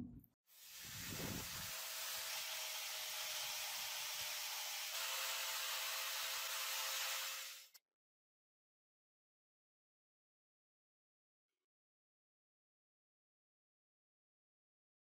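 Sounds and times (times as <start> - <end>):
sanding disc on metal: 0.6 - 7.8.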